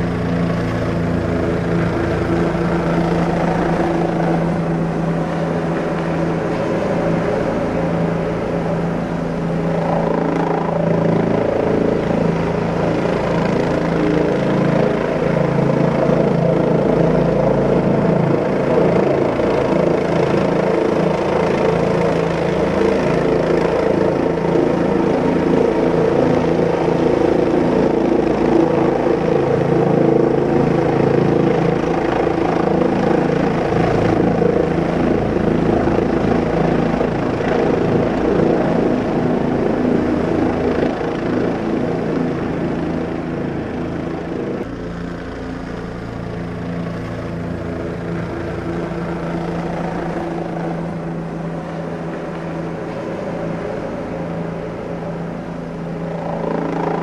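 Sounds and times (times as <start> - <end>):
helicopter engine and rotor drone: 0.0 - 57.0.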